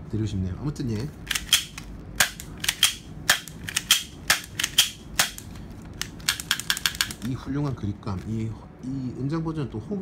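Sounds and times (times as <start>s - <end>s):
pistol slide clacking: 1.3s - 5.4s.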